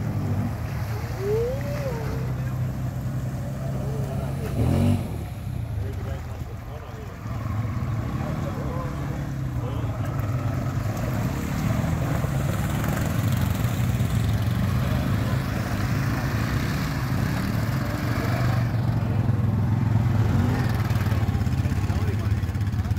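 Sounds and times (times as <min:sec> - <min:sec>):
quad bike engine running: 0:00.0 - 0:22.9.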